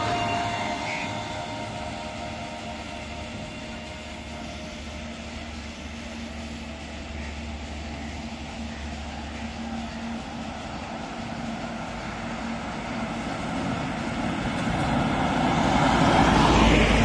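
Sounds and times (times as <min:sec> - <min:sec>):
electric rickshaw whine: 0:00.0 - 0:17.0
lorry engine drone: 0:00.0 - 0:17.0.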